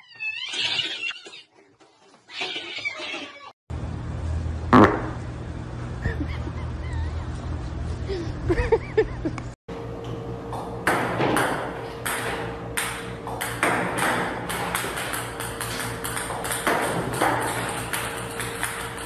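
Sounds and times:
ping-pong balls clicking and tapping: 10.9s - 19.0s.

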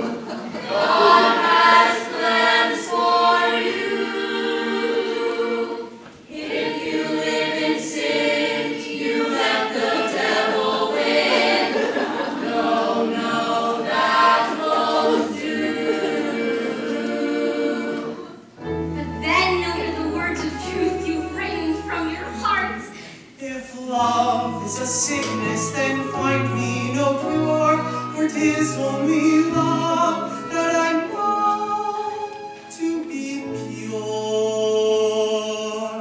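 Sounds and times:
choir singing in harmony: 0.0s - 36.0s.

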